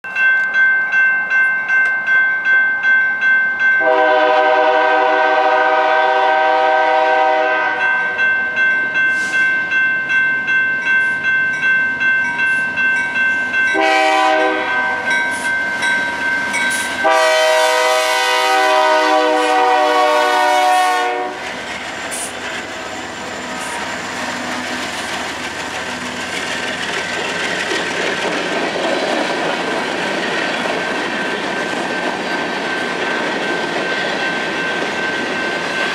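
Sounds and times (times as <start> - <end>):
crossing bell ringing: 0.0 - 35.9
locomotive air horn blasts: 3.8 - 8.2, 13.7 - 15.2, 17.0 - 21.4
freight cars rumbling over rails: 14.4 - 35.9.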